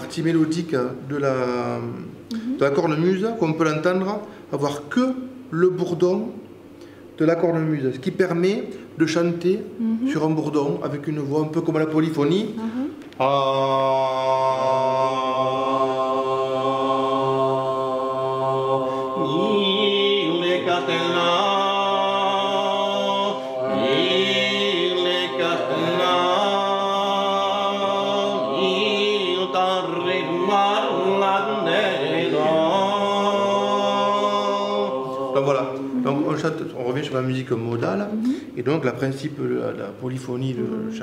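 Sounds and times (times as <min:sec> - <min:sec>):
person chanting: 0:12.6 - 0:36.6, 0:40.5 - 0:41.0.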